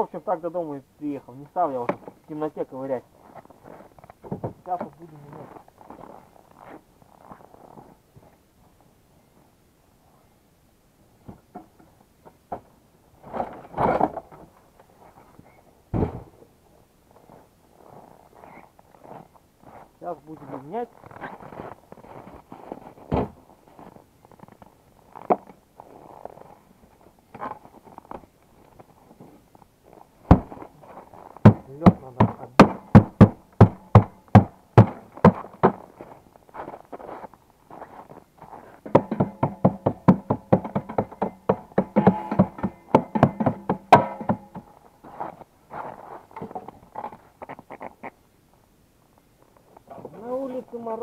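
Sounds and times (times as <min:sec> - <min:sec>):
hand tools knocking on metal: 0:38.9 - 0:44.7
sharp metal strikes: 0:41.9 - 0:44.6.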